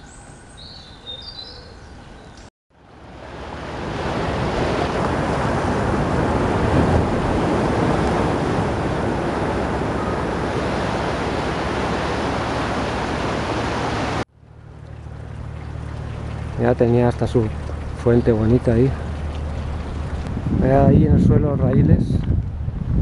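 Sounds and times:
steady rushing noise: 2.8s - 14.2s.

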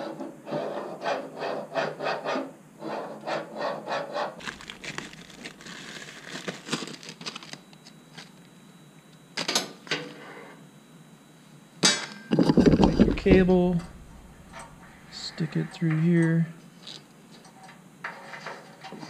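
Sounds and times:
plastic bag crinkling: 4.4s - 8.4s.

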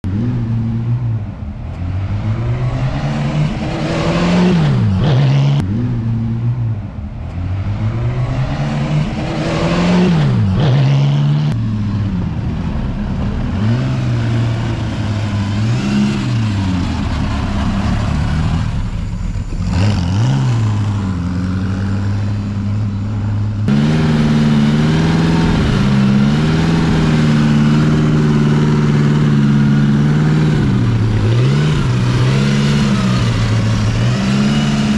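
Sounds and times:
racing engine revving: 0.0s - 34.9s.

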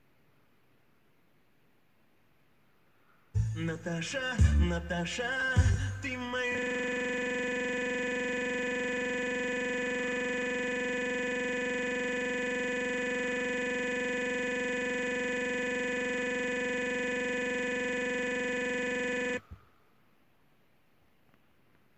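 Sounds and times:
faint background noise: 0.0s - 3.4s, 19.4s - 21.9s
steady electronic buzz tone: 6.4s - 19.6s.

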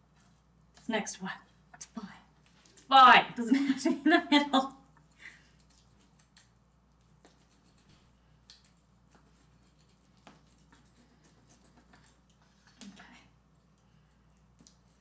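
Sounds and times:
knife cutting through quiche crust: 9.1s - 12.4s.

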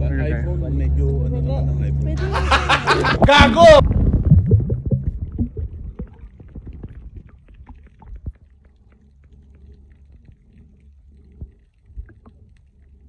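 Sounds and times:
muffled underwater rumble: 2.6s - 13.0s
small clicks and crackles: 5.9s - 13.0s.

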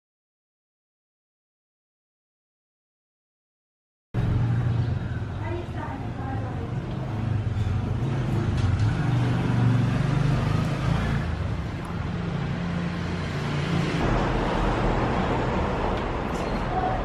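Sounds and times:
vehicle engine humming: 4.2s - 17.0s.

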